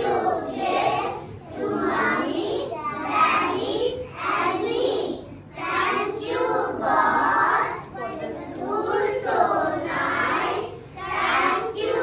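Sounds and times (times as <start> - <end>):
young children singing: 0.0 - 12.0.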